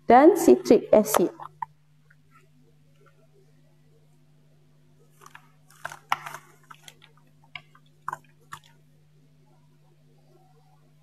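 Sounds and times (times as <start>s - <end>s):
plastic cup crinkling: 5.1s - 8.8s.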